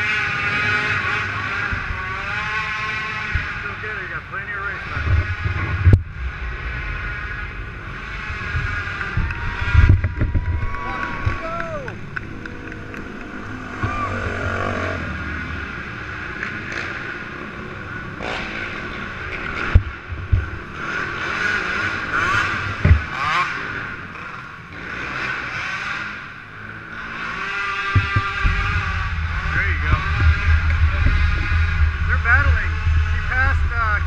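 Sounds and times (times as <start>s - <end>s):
quad engines revving: 0.0s - 34.0s
sharp thumps: 4.9s - 14.7s, 18.2s - 20.8s, 22.6s - 23.2s, 27.8s - 33.8s.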